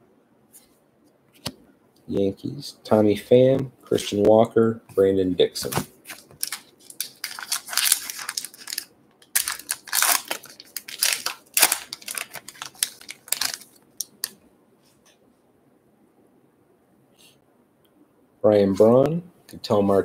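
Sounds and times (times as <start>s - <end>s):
card pack wrapper tearing: 5.7s - 14.4s.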